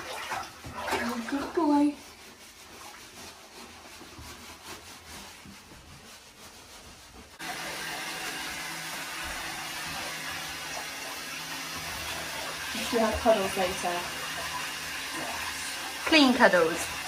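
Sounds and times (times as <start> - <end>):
hands rubbing wet fur: 0.0 - 17.0
shower head spraying water: 7.4 - 17.0.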